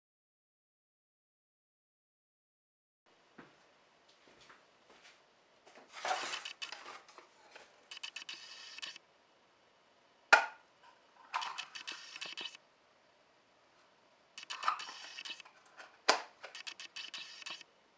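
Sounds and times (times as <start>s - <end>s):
sharp wooden knock: 10.3s - 10.6s.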